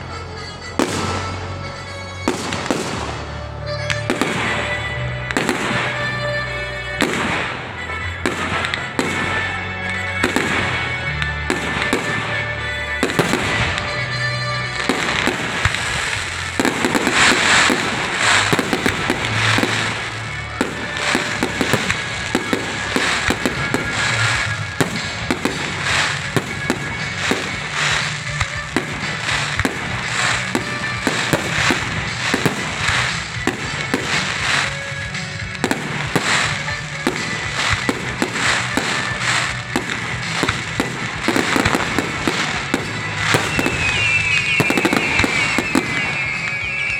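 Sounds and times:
firework crackle: 0.0 - 46.9
firework shells bursting: 15.0 - 46.9.

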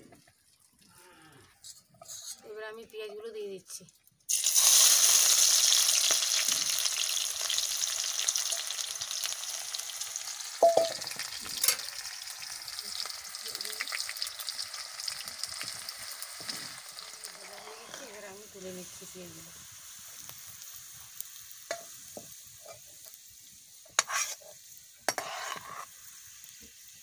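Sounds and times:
onions sizzling in hot oil: 1.7 - 27.0
ladle stirring and knocking: 10.6 - 11.8.

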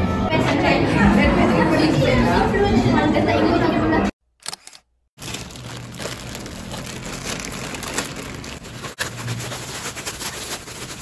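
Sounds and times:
plastic packaging crinkling: 5.2 - 11.0.

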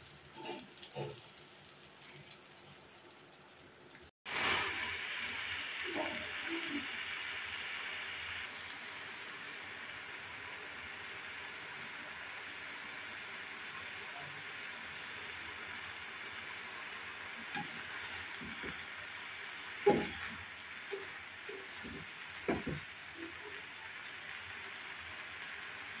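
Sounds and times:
curry sizzling in a pan: 0.0 - 26.0
spatula scraping a pan: 0.3 - 1.2.

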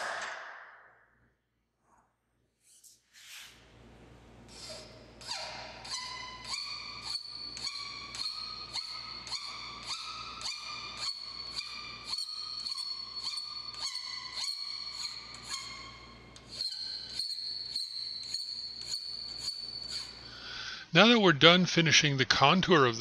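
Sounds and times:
file squealing on steel: 4.5 - 20.4.

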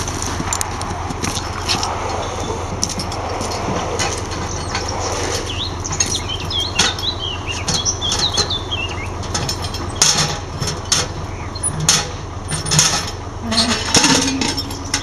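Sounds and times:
metal clinks and knocks: 0.0 - 15.0
steady low hum: 0.0 - 15.0
small bird chirping: 4.5 - 9.2.

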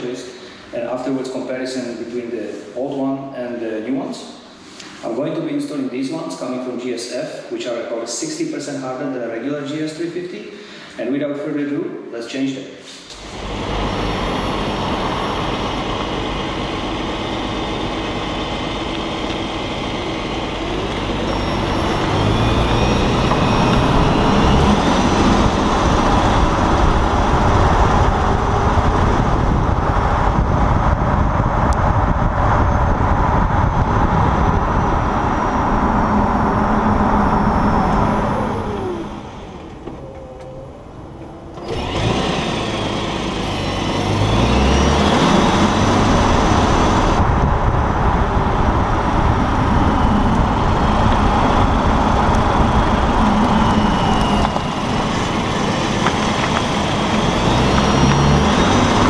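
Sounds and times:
tyre roar and road noise: 13.1 - 59.0
car engine running: 13.2 - 59.0.

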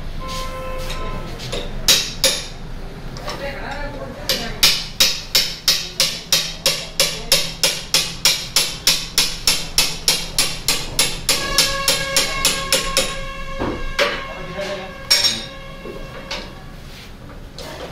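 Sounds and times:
steady ringing tones: 4.6 - 16.8.

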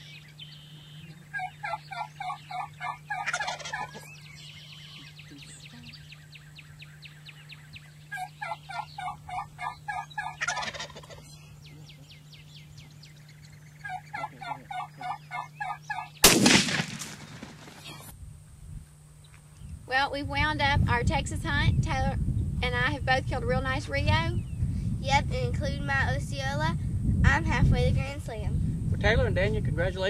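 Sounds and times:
turkeys calling: 0.0 - 18.1
loud gunshot: 16.2 - 18.0.

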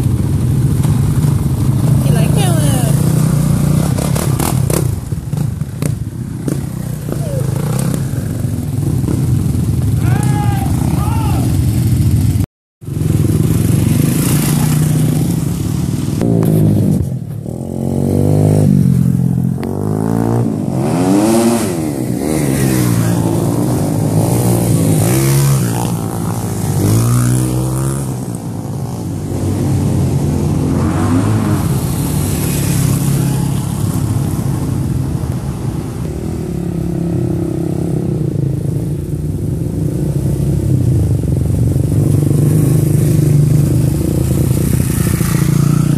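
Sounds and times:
dirt bike engines revving: 0.0 - 45.9.

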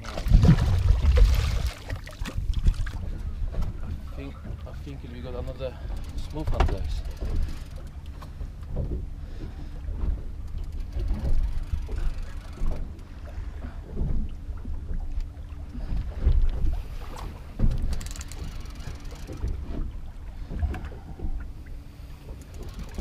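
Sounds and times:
wind buffeting microphone: 0.0 - 7.7
water slapping boat hull: 0.0 - 23.0.

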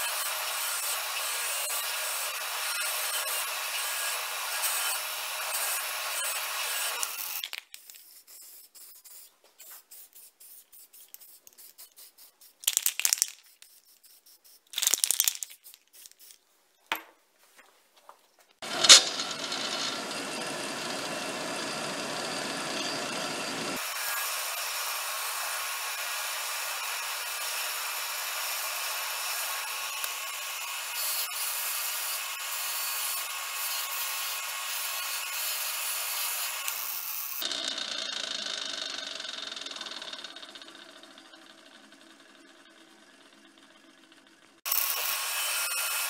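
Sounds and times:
electric bench grinder running: 18.6 - 46.0.

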